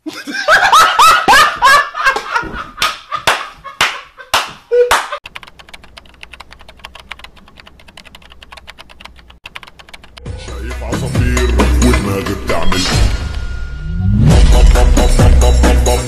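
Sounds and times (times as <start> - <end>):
faint typing clicks: 5.2 - 10.2.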